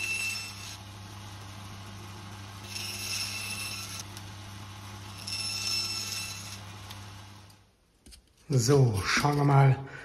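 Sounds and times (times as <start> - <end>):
saw cutting with high whine: 0.0 - 6.9.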